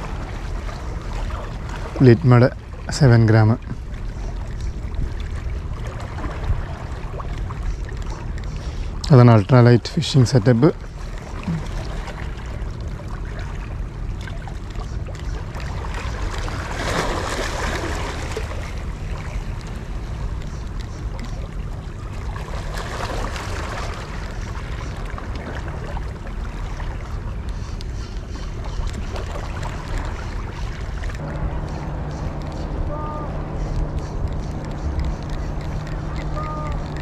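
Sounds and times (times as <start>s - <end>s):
low wind rumble: 0.0s - 37.0s.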